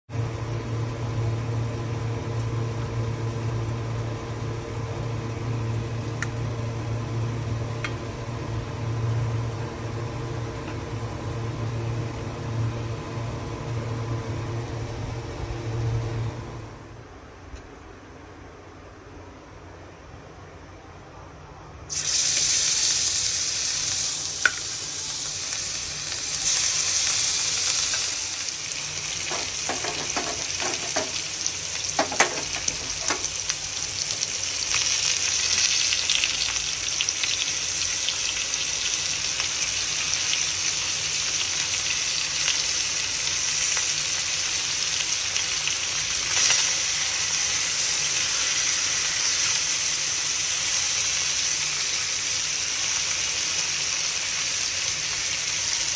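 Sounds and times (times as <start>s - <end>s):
fish sizzling in hot oil: 21.9s - 55.9s
metal utensil scraping pan: 29.3s - 31.2s.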